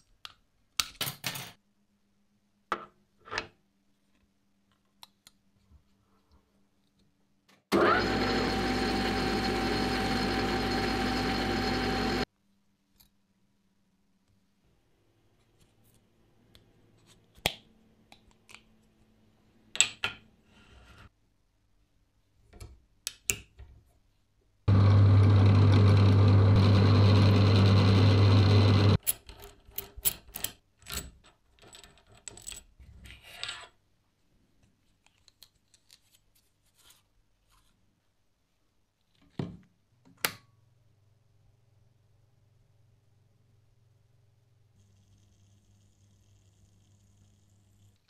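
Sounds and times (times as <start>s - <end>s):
workshop machine running: 7.7s - 12.3s, 24.7s - 29.0s.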